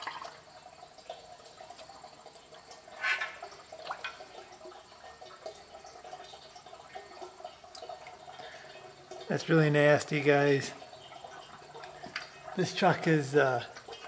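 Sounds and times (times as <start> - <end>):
oil dripping and splashing: 0.0 - 14.0.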